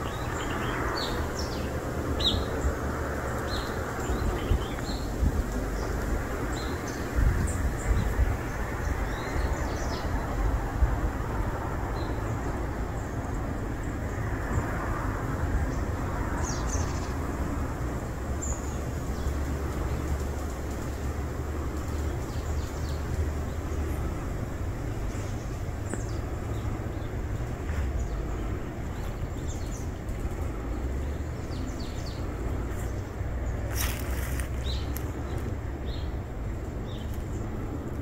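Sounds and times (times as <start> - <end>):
steady low rumble: 0.0 - 38.0.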